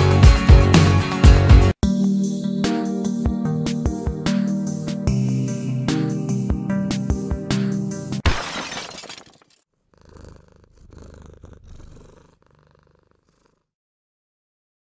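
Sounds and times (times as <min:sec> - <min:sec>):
music: 0:00.0 - 0:08.2
cat purring: 0:09.8 - 0:13.7.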